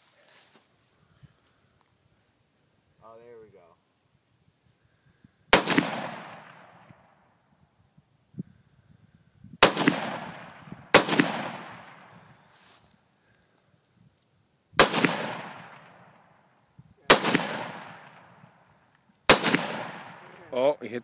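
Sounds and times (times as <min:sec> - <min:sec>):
rifle shots with rolling echo: 0:05.5 - 0:07.3, 0:09.6 - 0:12.5, 0:14.8 - 0:20.4.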